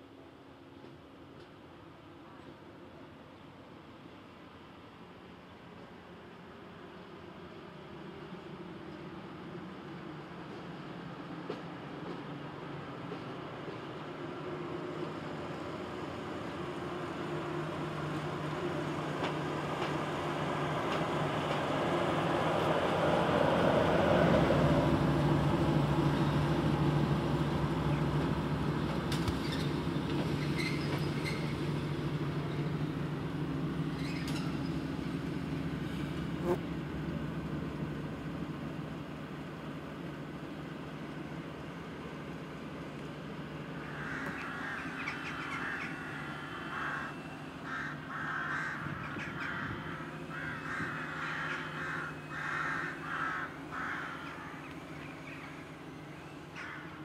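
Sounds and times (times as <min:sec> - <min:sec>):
diesel locomotive engine humming: 0:00.0 - 0:57.0.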